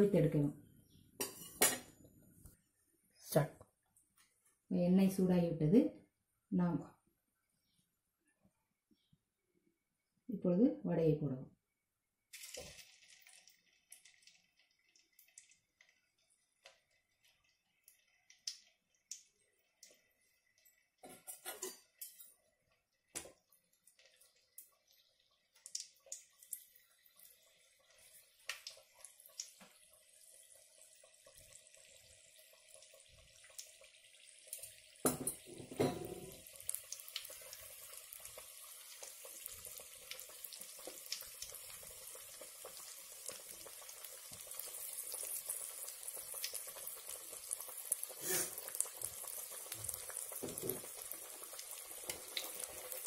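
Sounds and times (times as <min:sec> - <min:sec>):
oil crackling and popping: 0:12.3 - 0:35.4, 0:36.2 - 0:53.0
food sizzling in hot oil: 0:12.3 - 0:53.0.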